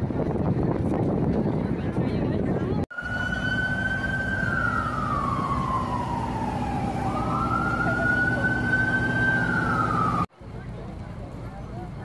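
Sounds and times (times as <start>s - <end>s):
emergency siren wailing: 2.9s - 10.3s.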